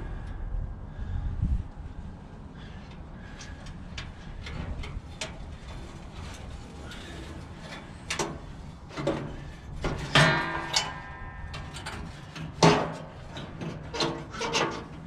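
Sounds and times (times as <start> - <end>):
metal grill parts clanking: 3.4 - 15.0.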